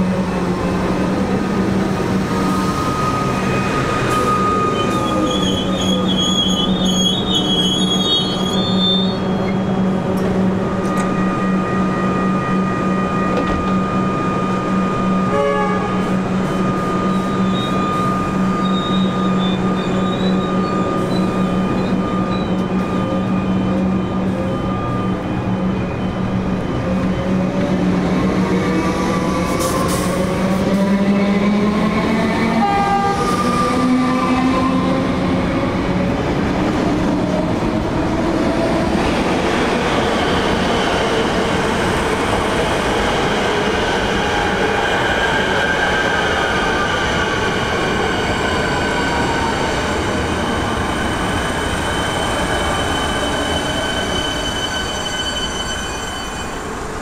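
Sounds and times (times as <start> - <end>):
wheels squealing on rail: 2.4 - 9.9, 10.7 - 27.2, 39.9 - 57.0.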